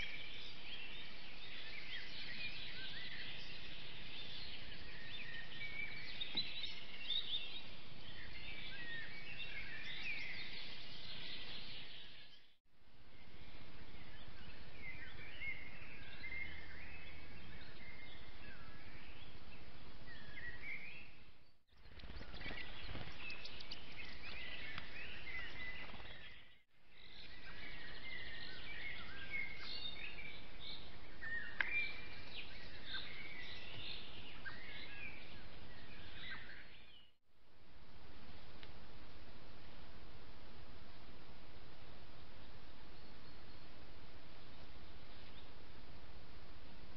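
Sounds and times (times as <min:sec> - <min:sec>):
songbirds singing and chirping: 0:00.0 - 0:37.2, 0:40.5 - 0:46.9.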